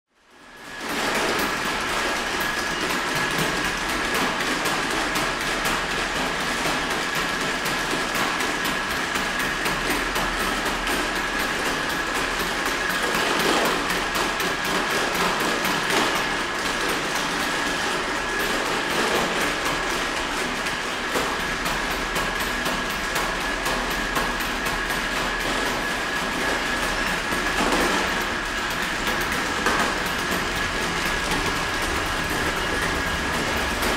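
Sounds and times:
steady high whine: 26.0s - 33.9s.

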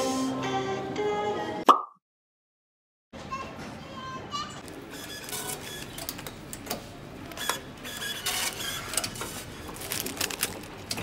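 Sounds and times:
ticket reader whirring and clicking: 4.8s - 9.4s.

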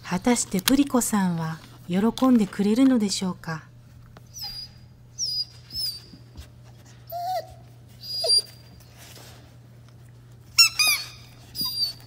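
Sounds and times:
dog whining: 4.3s - 6.4s, 7.0s - 8.9s, 10.5s - 12.0s.

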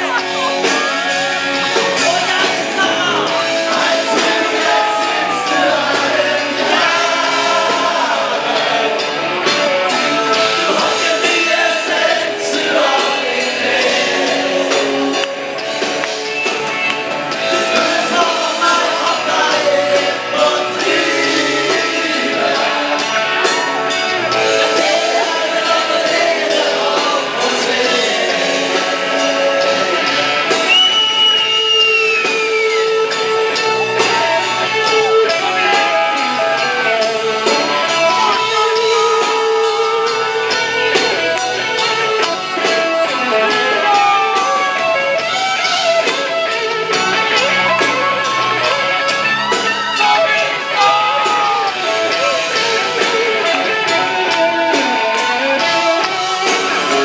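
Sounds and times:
men singing into microphones: 0.0s - 15.5s, 17.4s - 32.4s
drums keeping a steady beat: 0.0s - 57.0s
live rock band playing: 0.0s - 57.0s.

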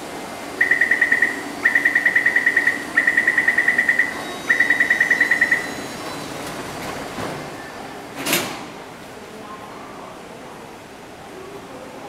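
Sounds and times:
rapid high door warning beeps: 0.6s - 6.5s.

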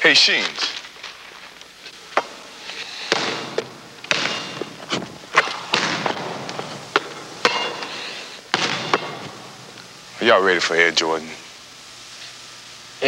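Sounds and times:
basketball bouncing on hardwood floor: 3.1s - 7.6s, 8.5s - 9.4s.

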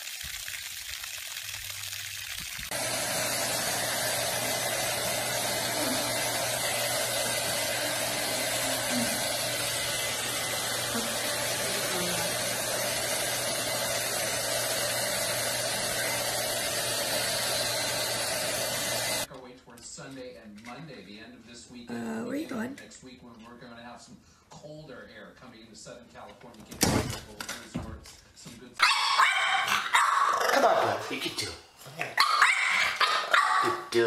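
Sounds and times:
water pouring from a tap: 0.0s - 2.8s
hair dryer running: 2.7s - 19.3s.

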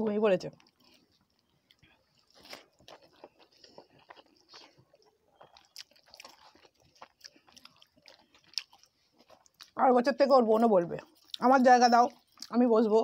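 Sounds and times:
person chewing: 0.6s - 9.8s, 11.0s - 12.6s.

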